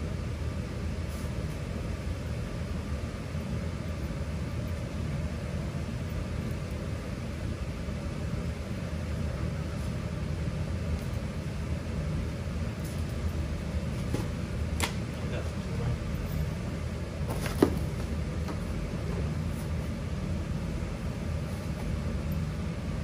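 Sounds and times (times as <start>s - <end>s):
low mechanical hum: 0.0s - 23.0s.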